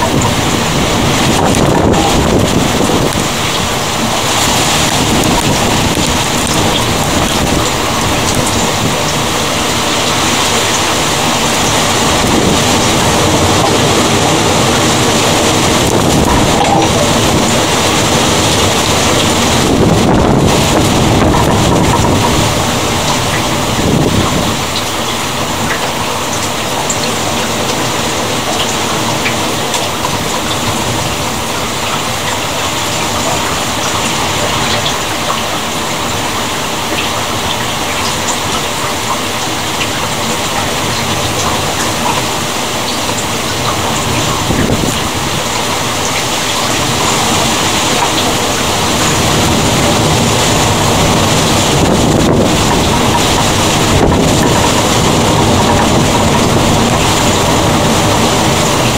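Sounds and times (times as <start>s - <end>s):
low thunder rumble: 0.0s - 25.7s, 46.8s - 58.9s
heavy rain: 0.0s - 58.9s.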